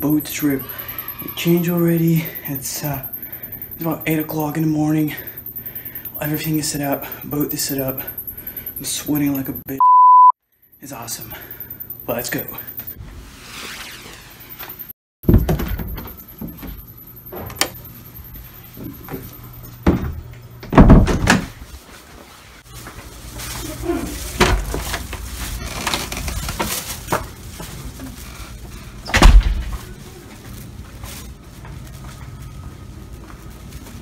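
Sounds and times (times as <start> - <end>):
doors opening and shutting: 14.2 - 17.8, 18.8 - 21.6, 29.0 - 29.8
door thuds: 19.8 - 21.5, 29.1 - 29.8.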